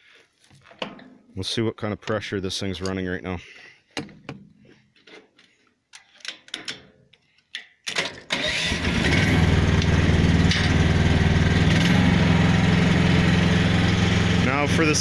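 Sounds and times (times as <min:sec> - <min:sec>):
excavator engine starting and running: 0:08.0 - 0:15.0.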